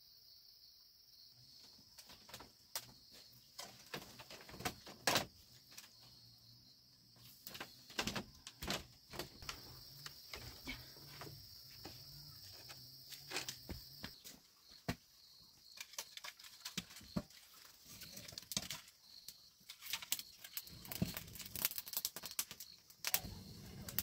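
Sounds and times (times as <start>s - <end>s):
creaks and knocks of bamboo platform: 2.0s - 6.2s, 7.4s - 15.1s
high insect drone: 5.8s - 16.2s.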